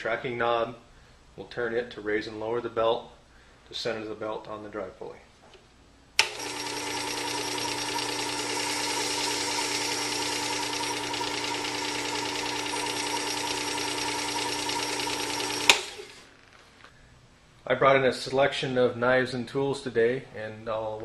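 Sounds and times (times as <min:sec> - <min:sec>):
belt sharpener motor humming: 0:06.2 - 0:16.3.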